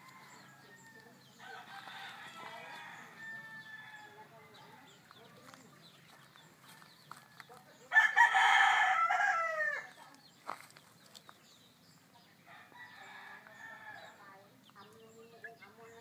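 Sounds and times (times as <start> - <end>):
rooster crowing: 0.0 - 4.2, 7.3 - 9.9
faint rooster crow: 0.0 - 4.3, 6.6 - 9.9.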